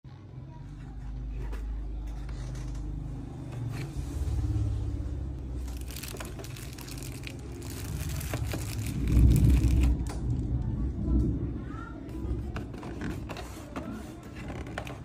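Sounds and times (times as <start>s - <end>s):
steady low rumble: 3.9s - 13.3s
plastic wrapper crinkling: 5.5s - 10.4s.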